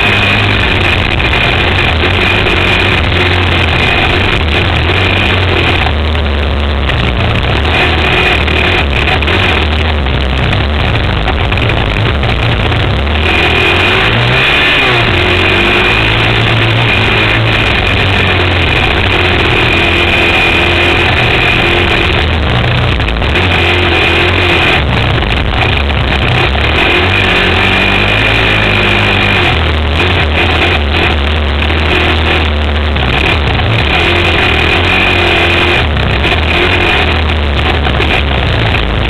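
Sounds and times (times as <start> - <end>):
quad engine revving: 0.0 - 39.0.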